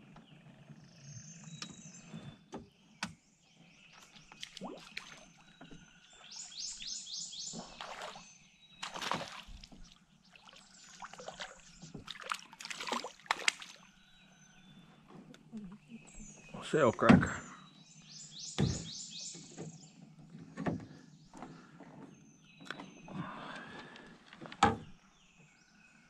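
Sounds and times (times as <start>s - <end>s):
water sloshing and splashing: 3.9s - 14.2s.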